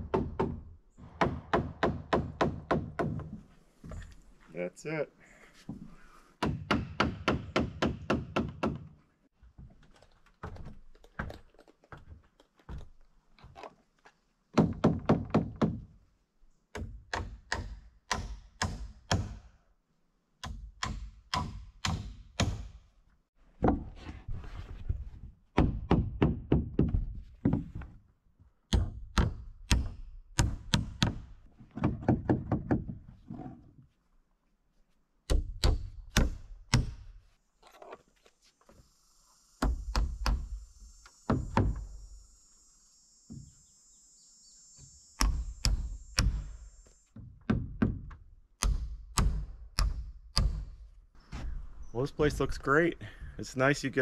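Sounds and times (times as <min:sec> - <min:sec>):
hammer driving nails into wood: 0:35.3 - 0:37.1, 0:47.2 - 0:50.8.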